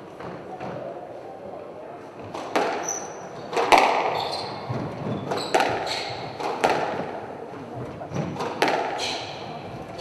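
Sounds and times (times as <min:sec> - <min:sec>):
squash ball striking walls: 0:02.2 - 0:07.2, 0:08.1 - 0:09.4
squash racket striking ball: 0:02.2 - 0:07.2, 0:08.2 - 0:09.4
shoes squeaking on wooden floor: 0:04.1 - 0:06.4.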